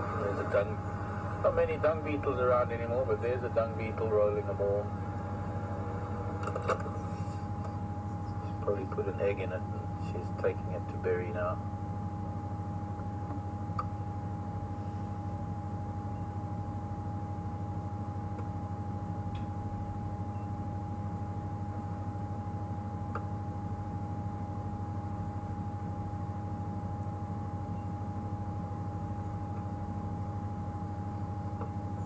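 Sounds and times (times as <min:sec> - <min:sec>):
vehicle engine idling: 0:00.0 - 0:14.1
thin whine: 0:00.0 - 0:32.0.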